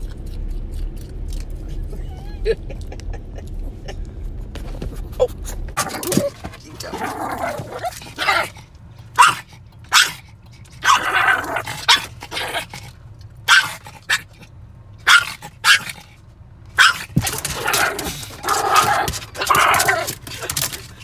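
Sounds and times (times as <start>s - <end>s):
low rumble inside car: 0.0s - 21.0s
small dog barking: 9.2s - 10.2s, 10.8s - 12.6s, 13.5s - 14.4s, 15.0s - 16.0s, 16.8s - 20.1s.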